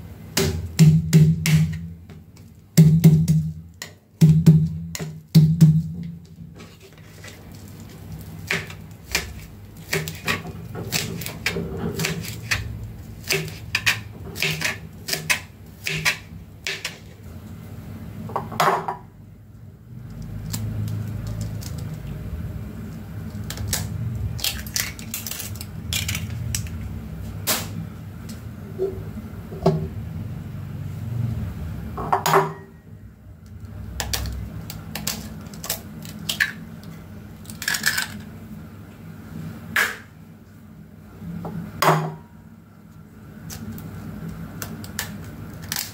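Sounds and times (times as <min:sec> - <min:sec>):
knife chopping on cutting board: 0:08.5 - 0:12.6, 0:13.2 - 0:16.9
eggs cracking: 0:37.4 - 0:38.3.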